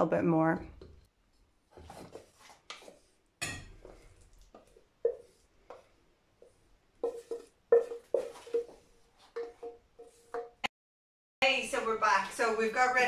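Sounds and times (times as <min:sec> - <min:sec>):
pot and spoon knocking on dish: 0:07.0 - 0:08.8.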